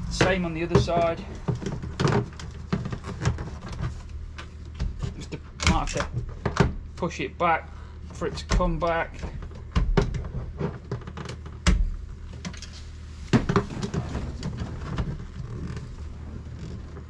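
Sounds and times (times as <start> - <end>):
steady low hum: 0.0 - 17.0
plastic and metal clicks and knocks: 0.2 - 7.0, 8.4 - 12.6.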